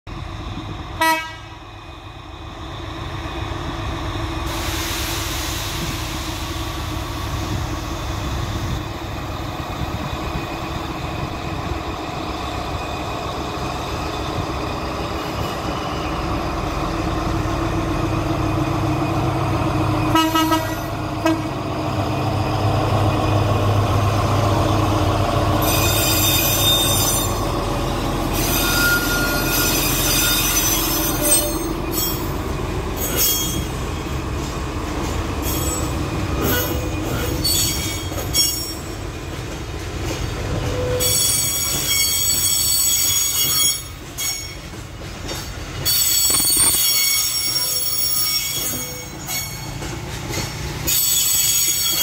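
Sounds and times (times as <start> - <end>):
diesel locomotive engine rumbling: 0.1 - 52.0
high-pitched wheel squeal: 25.6 - 27.4, 28.3 - 32.3, 35.4 - 38.9, 40.7 - 44.6, 45.8 - 49.7, 50.9 - 52.0
wheels clicking over rail joints: 34.4 - 52.0.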